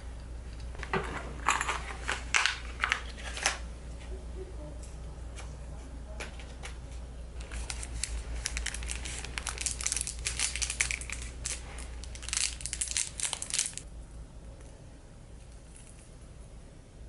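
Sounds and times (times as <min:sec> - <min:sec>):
plastic packaging crinkling: 0:07.4 - 0:13.8.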